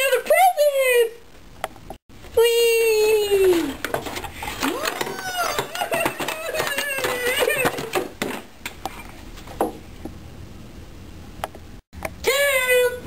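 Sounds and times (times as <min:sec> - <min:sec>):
clicks and knocks of plastic parts: 0:03.6 - 0:09.0.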